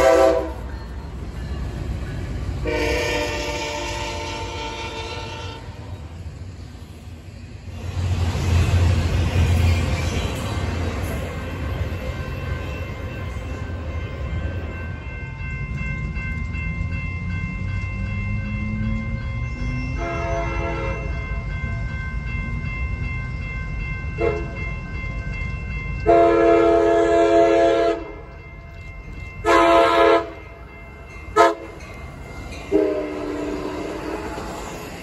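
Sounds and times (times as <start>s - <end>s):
train horn blasts: 0.0s - 0.7s, 2.6s - 6.0s, 19.9s - 21.2s, 24.2s - 24.6s, 26.0s - 28.2s, 29.4s - 30.4s, 31.3s - 31.8s, 32.7s - 34.5s
train low rumble: 0.0s - 35.0s.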